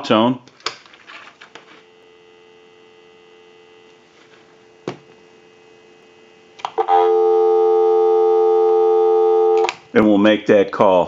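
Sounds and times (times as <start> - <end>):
telephone dial tone: 6.8 - 9.7
telephone line click: 9.4 - 9.8.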